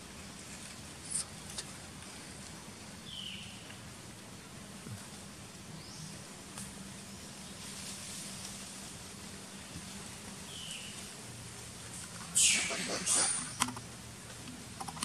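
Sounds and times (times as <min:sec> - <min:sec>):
steady outdoor hiss: 0:00.0 - 0:15.0
high chirp: 0:12.4 - 0:13.6.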